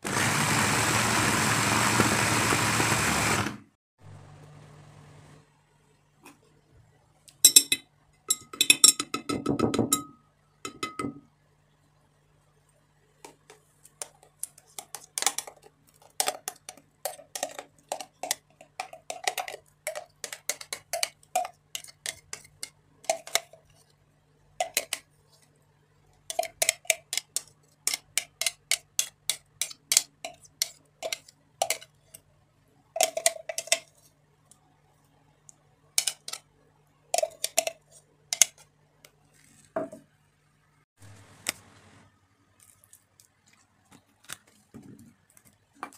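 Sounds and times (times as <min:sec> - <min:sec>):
metal spoon scraping and tapping bowl: 0:07.4 - 0:11.2, 0:13.3 - 0:23.9, 0:24.6 - 0:25.1, 0:26.2 - 0:32.2, 0:33.0 - 0:34.1, 0:36.0 - 0:36.5, 0:37.2 - 0:38.7.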